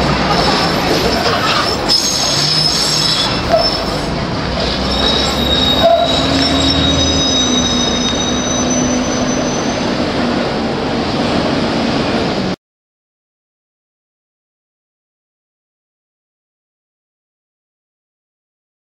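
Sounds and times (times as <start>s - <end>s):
tram wheels squealing on track: 0.0s - 10.6s
tram rolling rumble: 0.0s - 12.6s.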